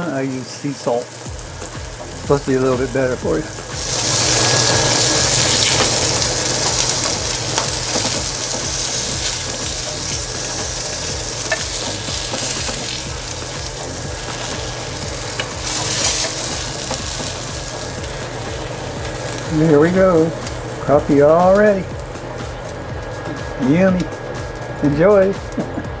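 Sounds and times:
fish fillets sizzling in oil: 0:00.0 - 0:24.6.

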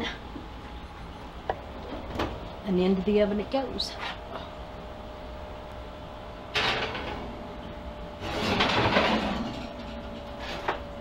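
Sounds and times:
dish clunk in oven: 0:06.5 - 0:07.2
dish scraping on oven rack: 0:06.5 - 0:07.3, 0:08.2 - 0:10.8.

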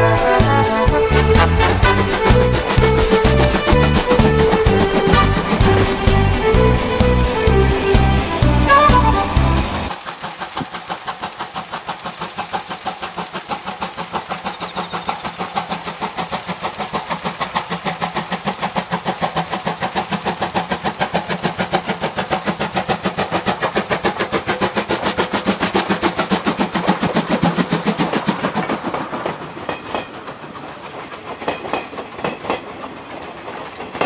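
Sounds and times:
steam locomotive chuffing: 0:00.0 - 0:34.0.

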